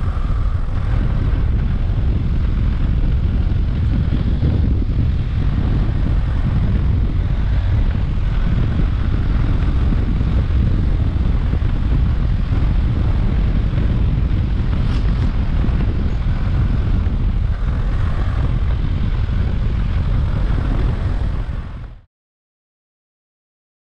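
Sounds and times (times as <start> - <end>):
motorcycle engine cruising: 0.0 - 22.1
wind rush on microphone: 0.0 - 22.1.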